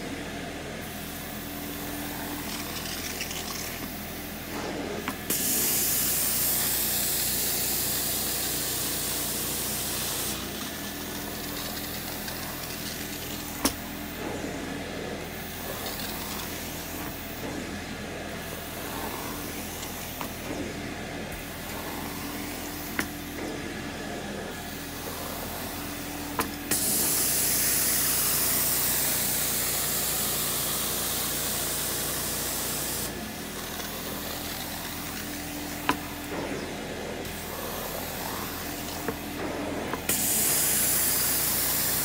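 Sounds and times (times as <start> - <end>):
carpet extractor motor hum: 0.0 - 42.0
spraying hiss: 18.4 - 42.0.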